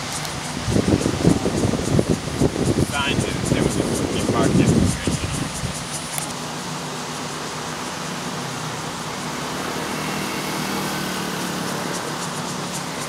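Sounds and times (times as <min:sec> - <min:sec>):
background hiss: 0:00.0 - 0:13.0
scooter engine passing: 0:06.4 - 0:13.0.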